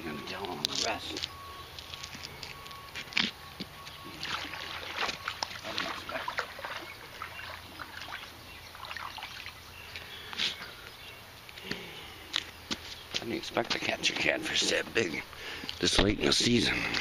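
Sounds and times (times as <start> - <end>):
river water splashing: 4.0 - 9.9.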